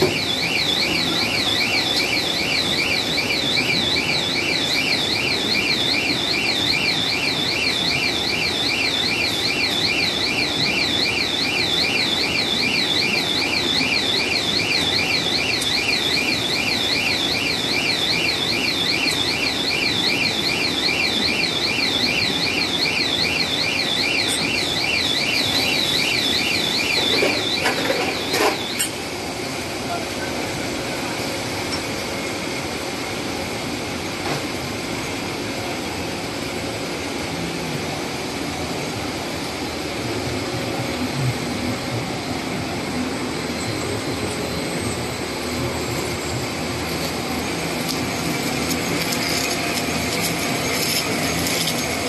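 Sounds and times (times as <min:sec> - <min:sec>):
warbling electronic alarm: 0:00.0 - 0:29.2, 0:39.4 - 0:52.0
machinery hum: 0:00.0 - 0:52.0.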